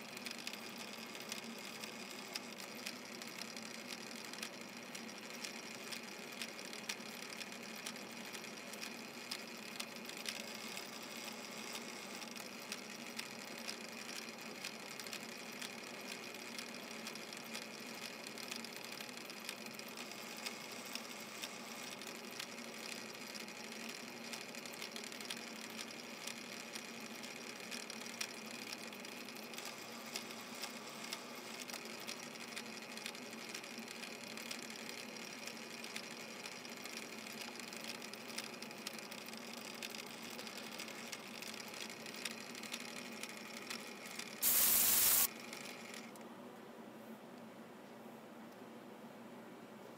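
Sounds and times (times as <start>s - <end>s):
small regular clicks: 0.0s - 46.3s
metal lathe whirring: 39.1s - 45.3s.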